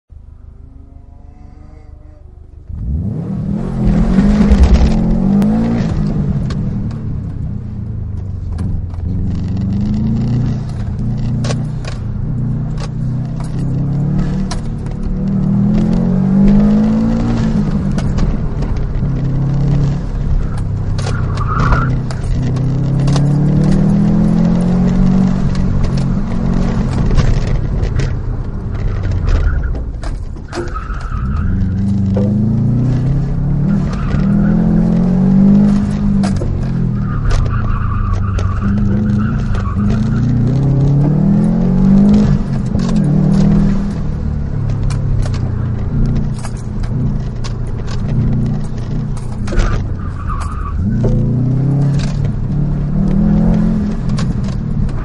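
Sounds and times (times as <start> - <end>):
car engine revving: 0.1 - 55.0
tire squeals: 14.2 - 27.0, 28.8 - 55.0.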